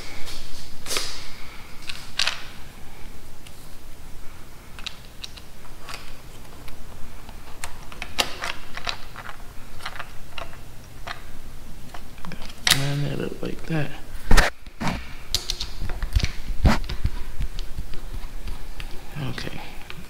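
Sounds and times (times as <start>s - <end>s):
plastic parts clicking: 4.8s - 11.2s.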